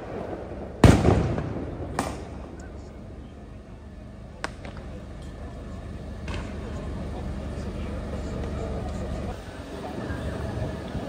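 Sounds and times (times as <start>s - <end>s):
sharp firework crack: 0.0s - 2.6s
firework bangs: 0.0s - 2.8s
steady low rumble: 0.0s - 11.0s.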